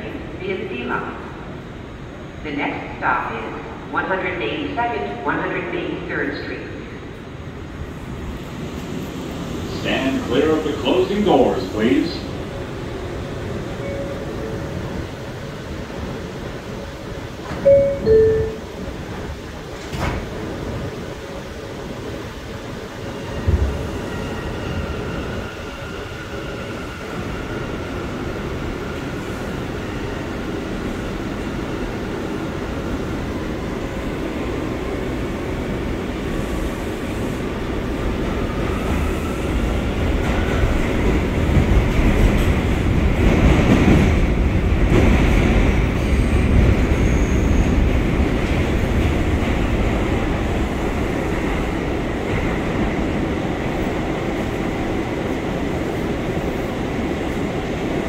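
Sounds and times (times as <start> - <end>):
two-tone door chime: 17.7 - 18.7
train wheels rumbling on rail: 18.7 - 58.0.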